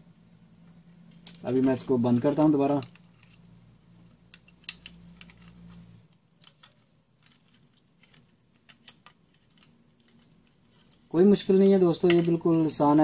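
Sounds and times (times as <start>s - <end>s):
faint low hum: 0.0s - 13.0s
plastic parts clicking and tapping: 1.1s - 3.4s, 4.0s - 11.1s, 11.9s - 12.8s.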